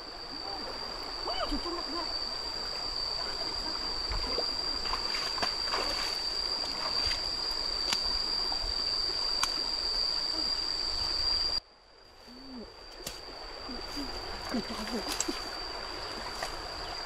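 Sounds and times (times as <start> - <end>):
stream water flowing: 0.0 - 11.6, 12.6 - 17.0
footsteps sloshing through water: 4.1 - 7.3, 13.9 - 17.0
branches snapping: 12.9 - 13.2.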